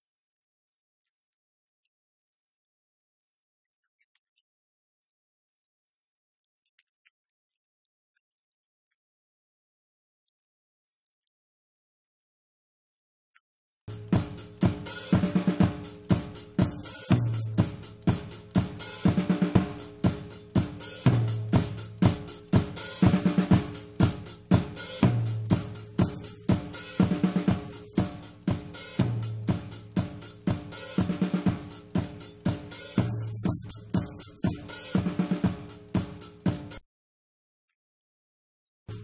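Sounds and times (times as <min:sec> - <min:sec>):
drum kit groove: 0:13.9 - 0:36.8.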